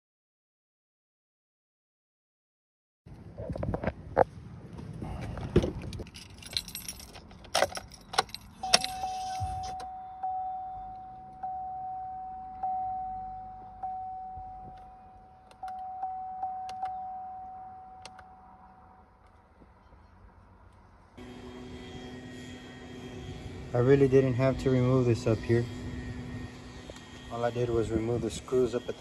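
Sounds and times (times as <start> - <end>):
keys jangling: 5.9 - 9.8
dashboard warning chime dinging: 8.2 - 19.0.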